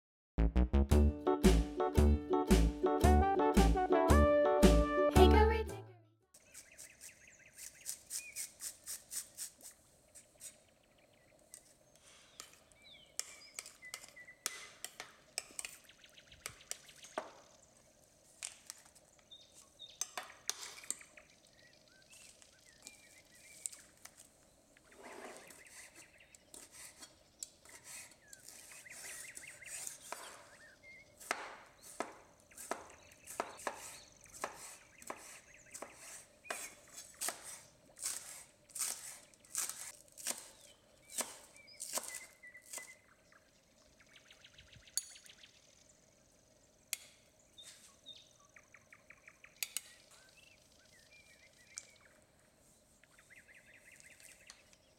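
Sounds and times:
faint bird chirps: 6.3s - 8.8s, 19.1s - 24.1s, 24.7s - 31.2s, 40.5s - 54.9s
knife chopping on wooden board: 31.2s - 40.5s, 41.2s - 42.9s.

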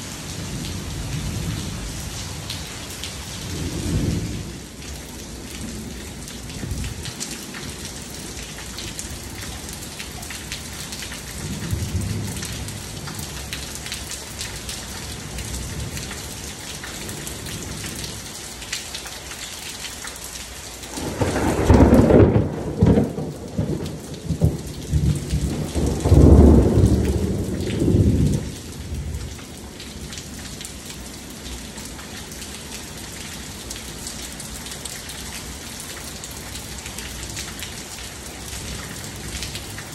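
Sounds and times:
steady rain falling: 0.0s - 39.9s
thunder rumbling: 20.9s - 29.4s.

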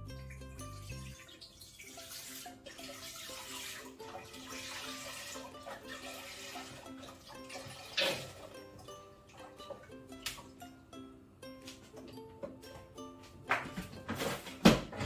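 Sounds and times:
milk pouring into metal pot: 0.9s - 8.7s.

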